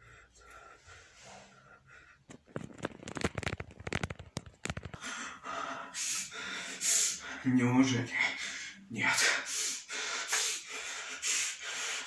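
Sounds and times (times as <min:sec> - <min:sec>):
crackling clicks: 0:02.2 - 0:05.0.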